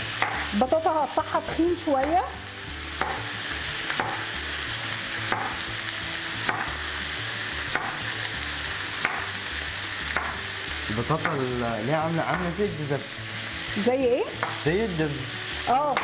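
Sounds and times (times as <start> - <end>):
chicken sizzling in a frying pan: 0.0 - 16.0
knife chopping on wooden board: 0.2 - 0.5, 3.0 - 3.3, 3.9 - 4.3, 5.2 - 5.6, 6.4 - 6.8, 7.7 - 8.0, 9.0 - 9.4, 10.1 - 10.4, 11.1 - 11.6, 14.4 - 14.6.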